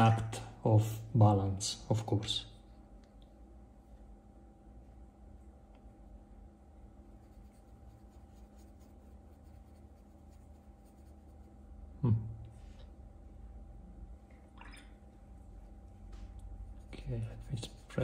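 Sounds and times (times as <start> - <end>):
low steady hum: 0.0 - 18.0
paintbrush strokes on paper: 6.9 - 11.9, 15.5 - 18.0.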